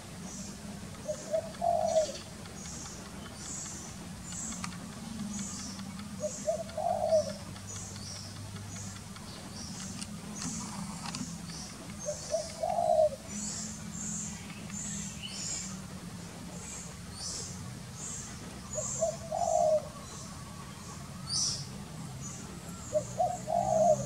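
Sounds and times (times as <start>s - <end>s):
dove cooing: 1.0s - 2.4s, 4.5s - 7.6s, 9.8s - 13.8s, 18.7s - 20.6s, 22.4s - 24.0s.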